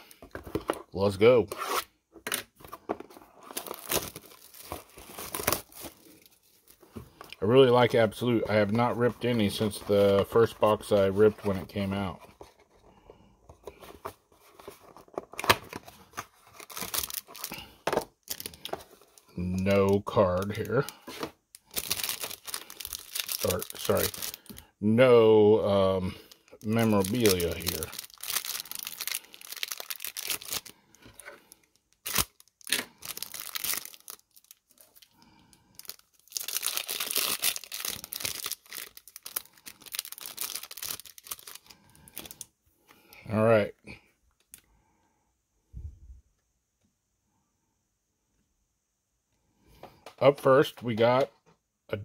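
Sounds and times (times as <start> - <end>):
plastic wrapper crinkling and tearing: 0.0 - 12.2, 14.5 - 42.5
cardboard box tearing and crinkling: 3.4 - 6.0
plastic wrapper snapping: 32.0 - 35.0.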